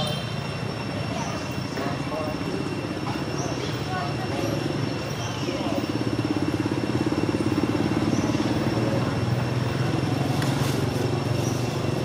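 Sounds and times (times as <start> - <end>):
motorbike engine idling: 0.0 - 12.0.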